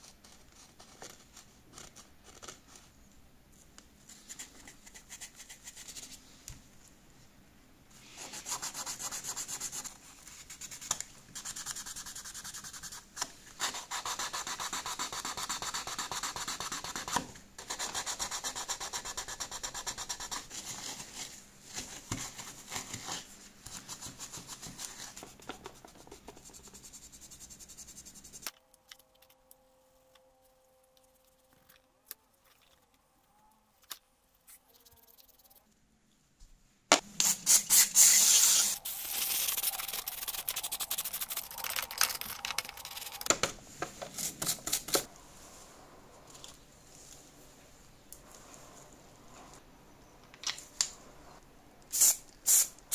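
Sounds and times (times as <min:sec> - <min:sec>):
low steady hum: 0:24.8 - 0:37.4.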